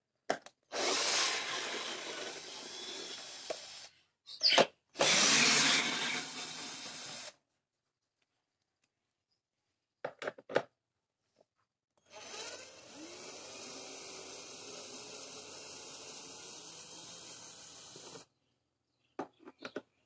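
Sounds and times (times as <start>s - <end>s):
cordless drill whirring: 0.7s - 3.9s, 5.0s - 7.4s, 12.0s - 18.3s.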